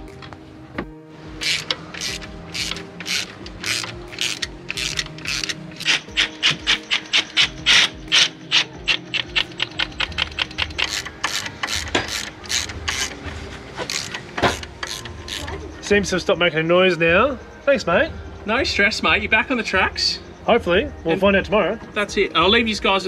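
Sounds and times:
ratchet wrench clicking: 1.4 - 13.2, 13.8 - 15.5.

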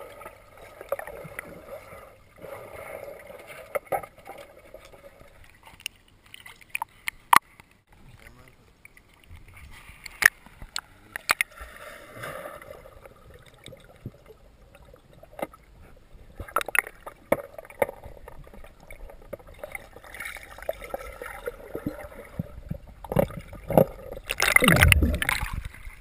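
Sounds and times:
muffled underwater sloshing: 8.1 - 26.0.

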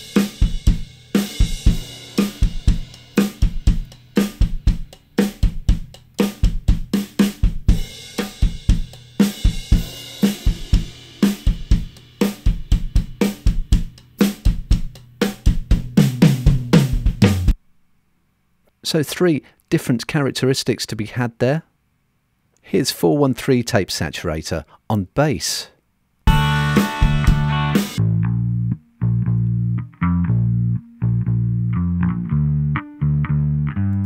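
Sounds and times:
drum kit playing a groove: 0.0 - 17.6, 26.3 - 28.7.

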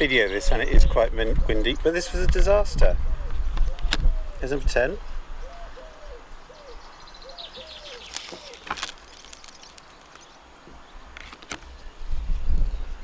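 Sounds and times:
wind rumbling on microphone: 0.0 - 13.0
dove cooing: 3.1 - 4.4, 5.4 - 9.4
small bird chirping: 5.4 - 12.0.

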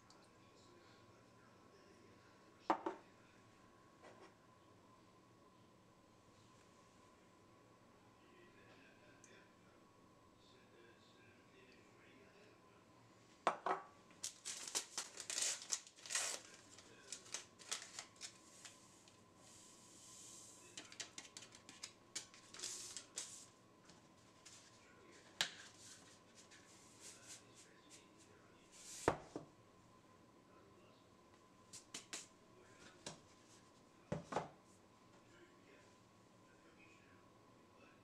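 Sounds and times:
sachet crinkling and tearing: 14.2 - 18.8, 21.4 - 23.4.

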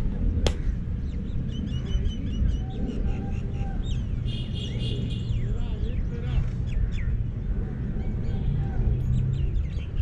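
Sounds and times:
low rumble: 0.0 - 4.3
small birds chirping: 0.2 - 10.0
sharp crack: 0.4 - 0.8.

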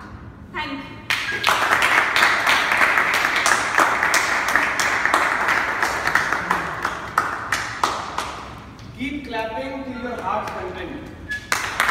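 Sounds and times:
audience applauding: 1.1 - 8.5, 11.5 - 11.9.

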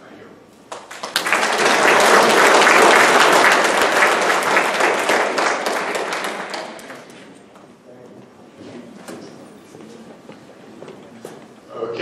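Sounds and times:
audience applauding: 0.7 - 7.5.

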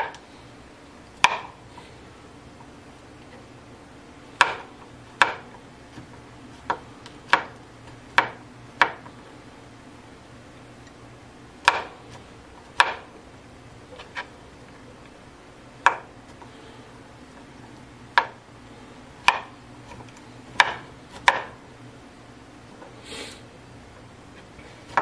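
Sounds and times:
knife chopping on cutting board: 1.2 - 1.6, 4.4 - 9.1, 11.6 - 13.1, 15.8 - 16.1, 18.1 - 18.4, 19.2 - 21.6.

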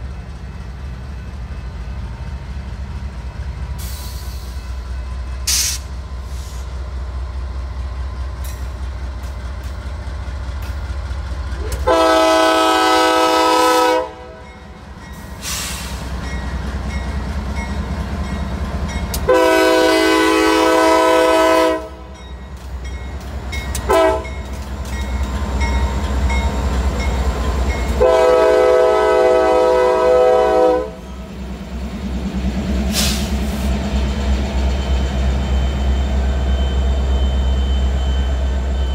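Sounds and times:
locomotive air horn blasts: 11.6 - 14.4, 19.2 - 22.1, 23.9 - 24.3, 28.0 - 31.0.

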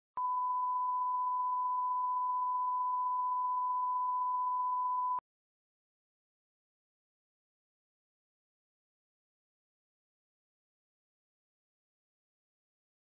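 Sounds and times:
steady test tone beep: 0.2 - 5.2.

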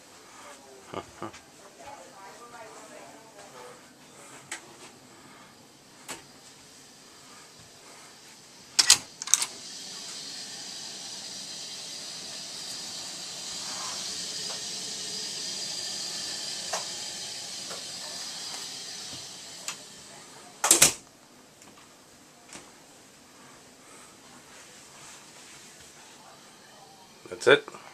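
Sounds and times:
steady hiss: 1.9 - 22.2.

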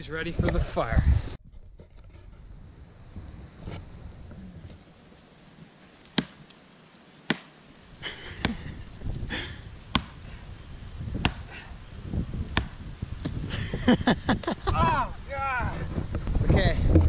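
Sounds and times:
twigs rustling: 1.5 - 13.6
branches snapping: 5.7 - 10.4, 11.2 - 11.6, 12.4 - 13.5.

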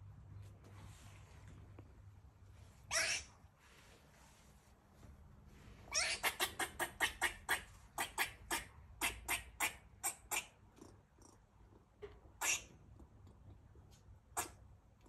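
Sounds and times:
squirrel barking: 2.9 - 3.3, 5.9 - 10.6, 12.4 - 12.8, 14.3 - 14.6.

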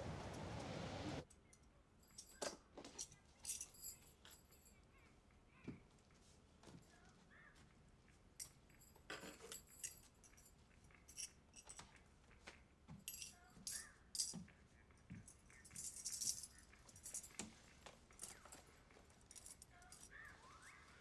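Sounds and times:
small objects clicking and rattling: 15.2 - 20.8.

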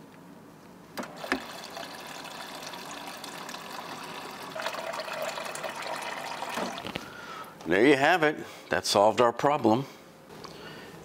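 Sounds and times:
water dispenser click: 1.0 - 1.6
water running into plastic cup: 1.0 - 7.1.

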